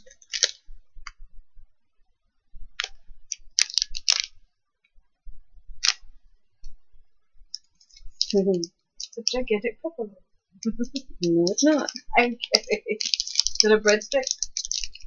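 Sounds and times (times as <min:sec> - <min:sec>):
wrapping crackling: 0:00.0 - 0:00.7, 0:02.7 - 0:04.4, 0:05.8 - 0:06.1, 0:07.5 - 0:09.5, 0:10.7 - 0:15.0
pen clicking: 0:10.9 - 0:15.0.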